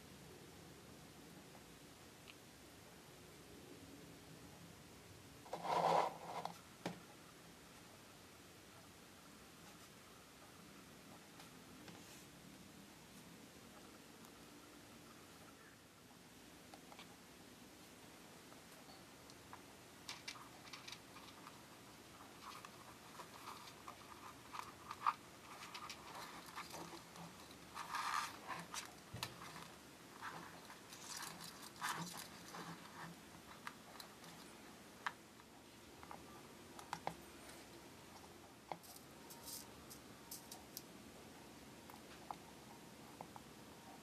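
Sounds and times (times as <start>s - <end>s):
fingers handling plastic and wires: 19.5s - 21.6s, 22.4s - 36.2s.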